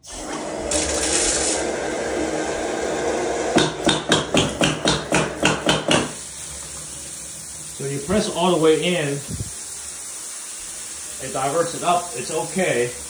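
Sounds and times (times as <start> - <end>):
water running from bathtub spout: 0.0 - 13.0
sharp knocks: 3.6 - 6.2.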